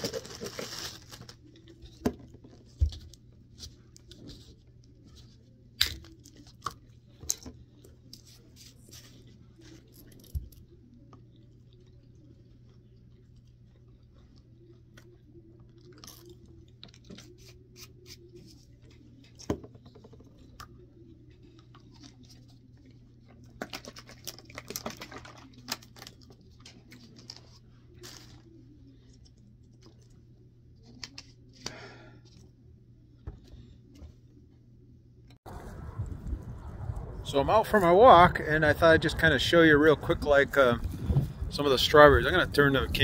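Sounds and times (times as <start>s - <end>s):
plastic bottle and packet crinkling: 0.0s - 32.5s
steady low hum: 26.0s - 43.0s.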